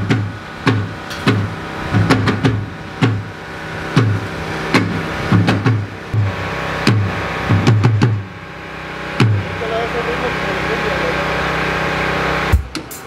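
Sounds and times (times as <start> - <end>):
loud electronic music with bass: 9.2 - 13.0.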